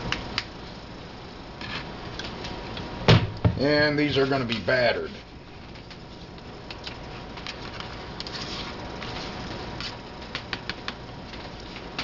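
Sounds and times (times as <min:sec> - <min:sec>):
soft scraping and handling: 0:07.1 - 0:10.0.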